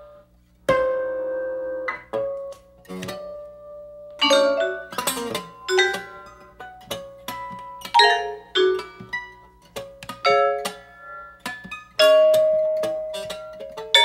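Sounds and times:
mallet percussion notes: 0:04.2 - 0:09.4, 0:12.0 - 0:14.0.

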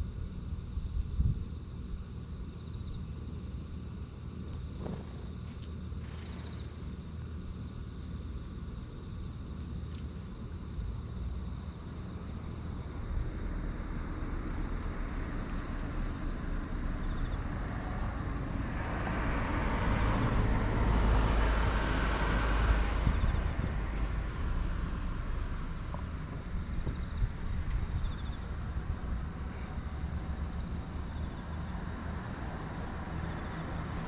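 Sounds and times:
faint insect chirping: 0:00.0 - 0:34.0
vehicle passing: 0:13.4 - 0:26.8.

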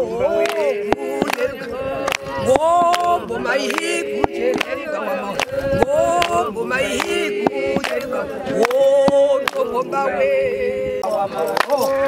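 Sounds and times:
women singing unaccompanied: 0:00.0 - 0:12.0
sharp hand claps: 0:00.4 - 0:01.5, 0:02.1 - 0:05.6, 0:06.2 - 0:09.7, 0:11.6 - 0:11.8.

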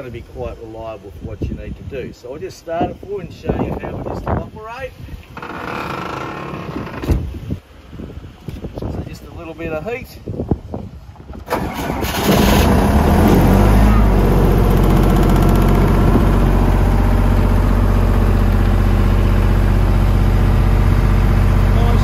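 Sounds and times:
diesel engine starting and running: 0:11.3 - 0:22.0.

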